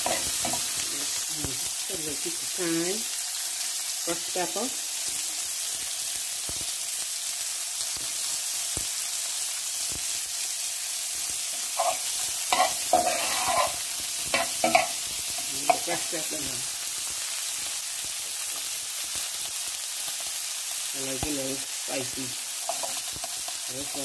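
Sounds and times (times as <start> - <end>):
metal spoon scraping a pan: 0.0 - 0.8, 11.5 - 16.1, 22.6 - 24.0
vegetables sizzling in oil: 0.0 - 24.0.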